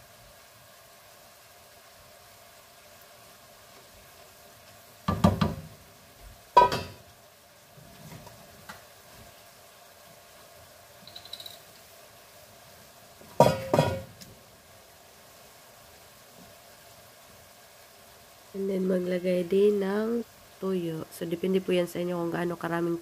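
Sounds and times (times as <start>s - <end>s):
wooden spatula knocking on frying pan: 5.0s - 5.8s, 6.6s - 7.0s, 13.4s - 14.1s.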